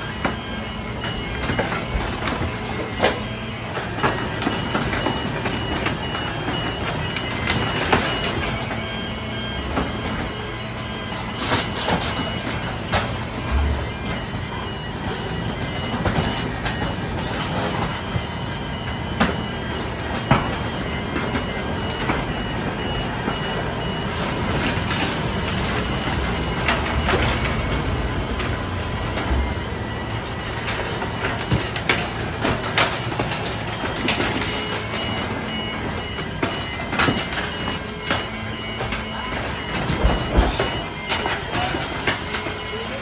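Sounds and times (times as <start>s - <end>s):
truck engine and hydraulics: 0.0s - 43.0s
warning alarm beeping: 0.0s - 43.0s
debris cracking and snapping: 24.0s - 43.0s.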